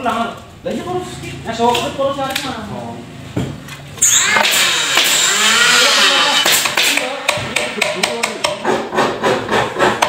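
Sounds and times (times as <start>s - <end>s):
noisy tool whir: 4.0s - 7.4s.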